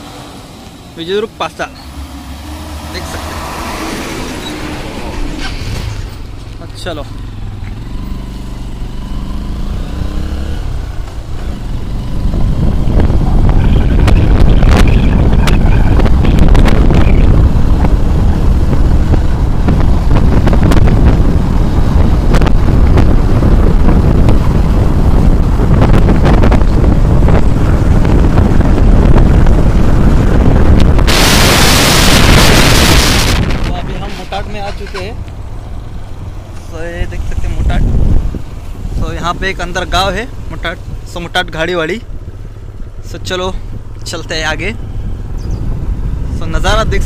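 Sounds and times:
motorcycle engine running: 6.0s - 46.8s
wind rumble on microphone: 9.5s - 47.0s.

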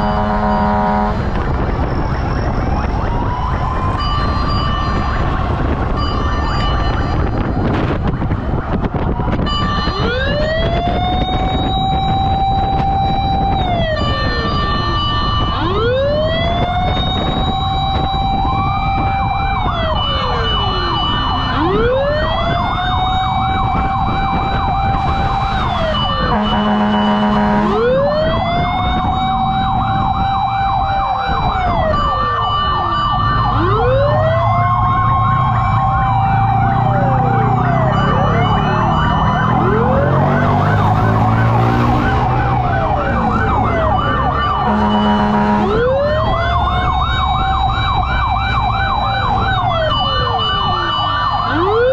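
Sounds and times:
horn blast: 0.0s - 1.3s, 26.3s - 28.0s, 44.6s - 46.0s
wailing siren: 0.0s - 51.9s
yelping siren: 0.0s - 51.9s.

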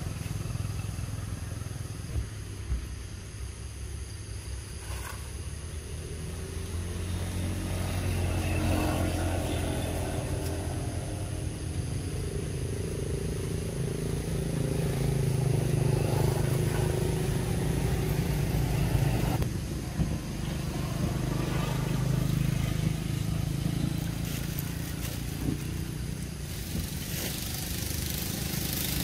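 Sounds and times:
engine running: 0.0s - 3.7s, 4.8s - 29.0s.

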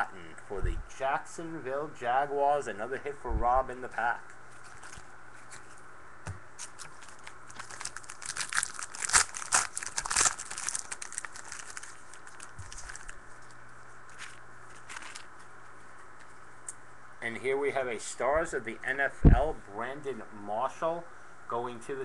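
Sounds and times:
foil wrapper crinkling and tearing: 4.6s - 5.8s, 6.6s - 15.5s.

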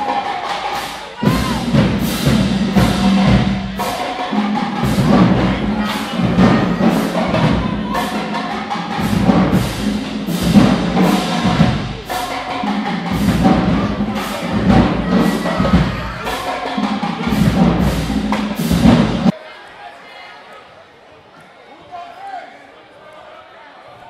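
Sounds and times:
drum hits: 0.0s - 19.3s
marching band playing: 0.0s - 19.3s
brass low tones: 1.2s - 19.3s.

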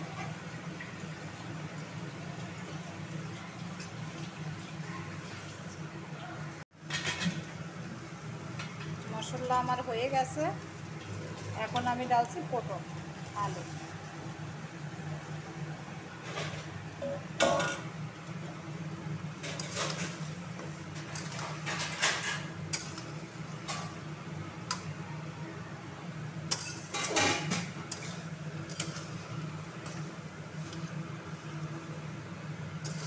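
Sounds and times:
spatula scraping a metal pan: 26.5s - 29.3s.

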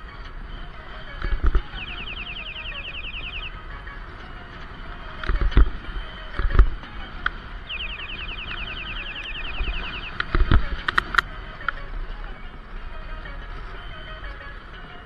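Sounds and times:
rapid chirping: 1.7s - 3.6s, 7.7s - 10.3s.

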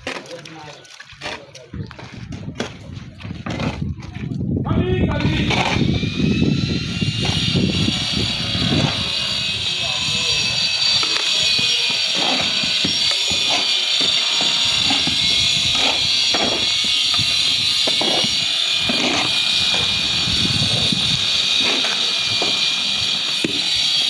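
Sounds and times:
shovels scraping on concrete: 0.0s - 4.2s, 10.4s - 20.0s, 20.7s - 24.0s.

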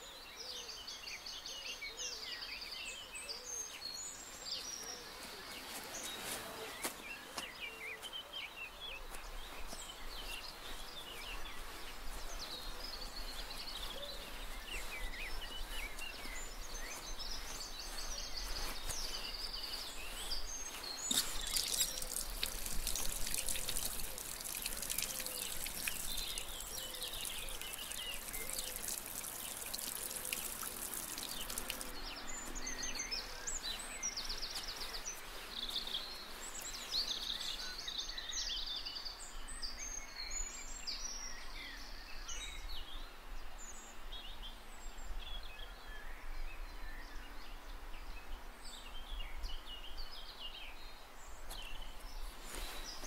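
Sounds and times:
birds chirping and calling: 1.7s - 38.2s
high steady hiss: 21.0s - 32.0s.

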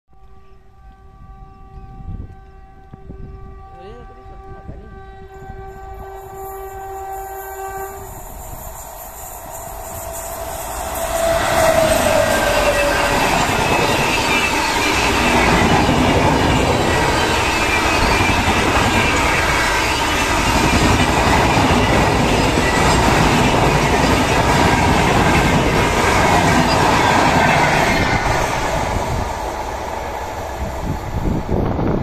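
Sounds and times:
train wheels rushing on rails: 5.5s - 32.0s
faint high wheel squeal: 5.7s - 20.2s.

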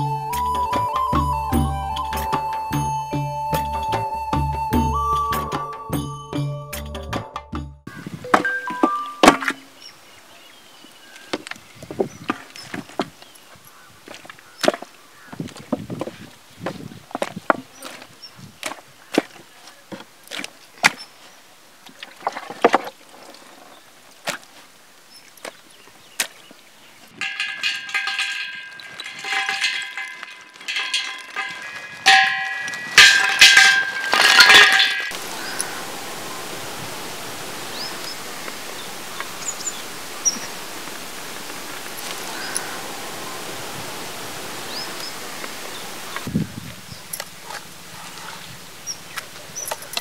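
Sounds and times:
charcoal clattering onto metal: 8.3s - 9.7s, 27.2s - 35.8s
steady hiss: 26.8s - 50.0s.

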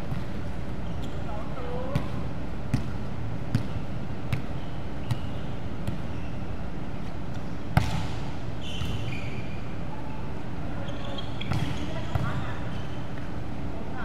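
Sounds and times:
loud ball smack: 7.8s - 9.0s.

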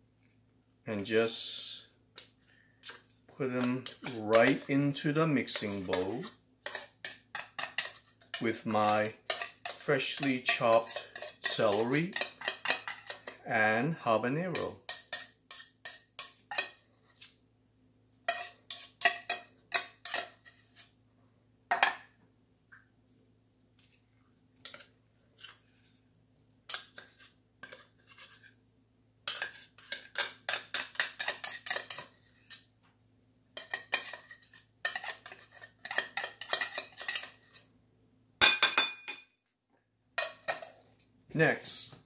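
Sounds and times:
metal spoon scraping tin can: 2.8s - 13.4s.

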